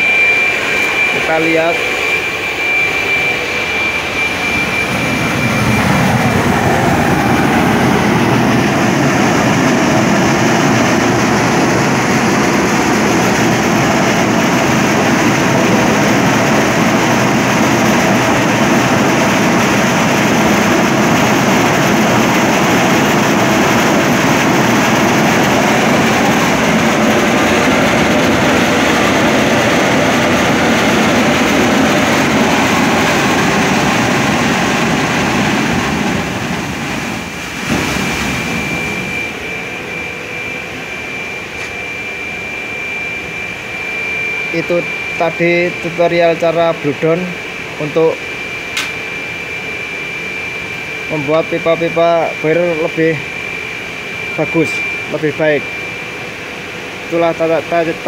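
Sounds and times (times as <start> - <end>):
high steam whistle: 0.0 - 7.4, 37.7 - 46.7, 47.8 - 57.9
steam rushing in loud hiss: 30.1 - 39.7.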